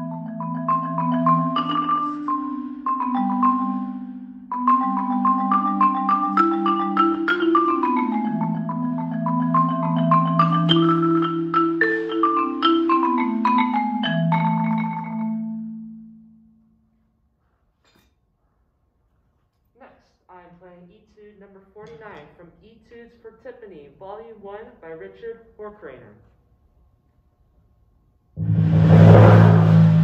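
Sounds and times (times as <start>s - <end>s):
marimba melody: 0.0s - 16.6s.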